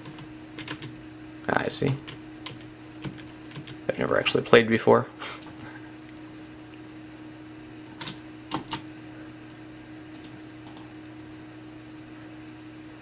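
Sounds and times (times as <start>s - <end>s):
steady low hum: 0.0s - 13.0s
computer clicks: 10.1s - 10.9s.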